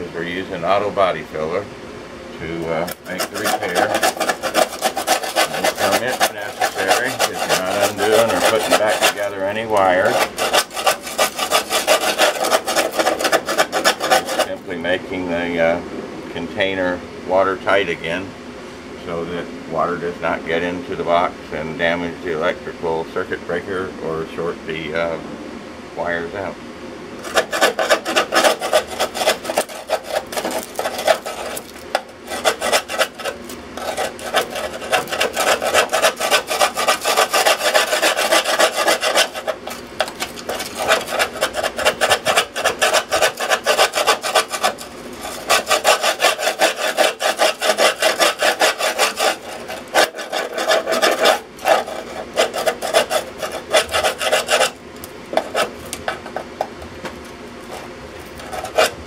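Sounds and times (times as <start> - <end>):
abrasive scrubbing sheet metal: 2.4 - 14.8, 27.2 - 56.4, 57.7 - 59.0.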